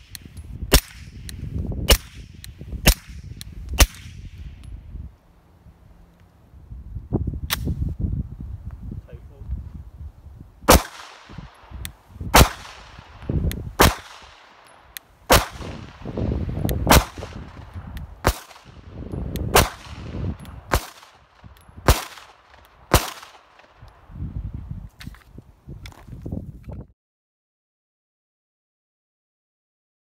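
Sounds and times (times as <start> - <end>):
pistol shots with echo: 1.9 - 4.3, 10.7 - 23.8.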